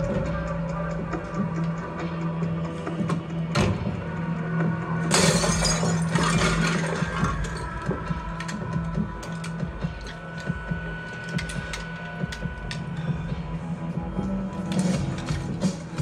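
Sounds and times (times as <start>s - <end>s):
glass shattering: 5.1s - 7.8s.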